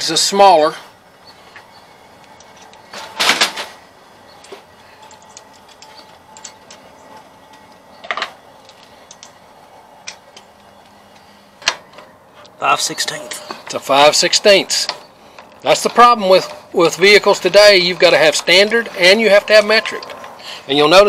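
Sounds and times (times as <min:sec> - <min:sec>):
hand tools clinking on metal: 0:04.3 - 0:09.4.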